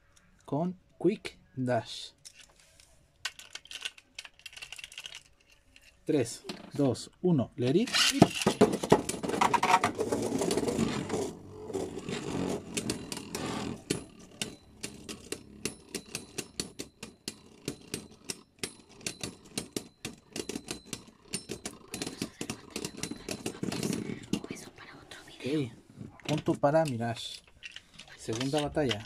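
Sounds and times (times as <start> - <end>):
spinning tops whirring and scraping: 7.9 - 24.6.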